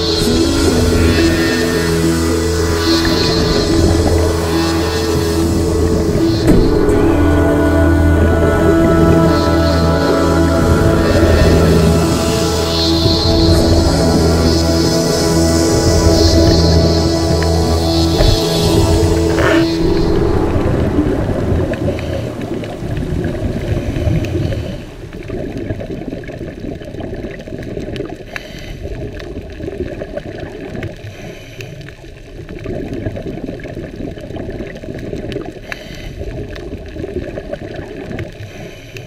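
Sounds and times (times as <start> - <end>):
diver's exhaled bubbles gurgling: 15.7 - 38.6
faint clicks: 21.7 - 39.0.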